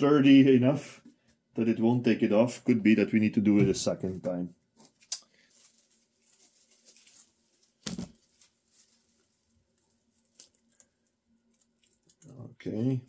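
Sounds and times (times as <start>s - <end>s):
cling film rustling: 4.7s - 12.3s.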